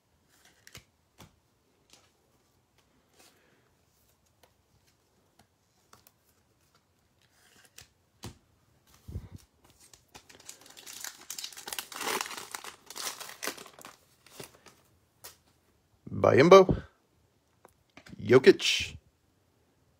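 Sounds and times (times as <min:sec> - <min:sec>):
foil wrapper crinkling and tearing: 0:09.7 - 0:14.8.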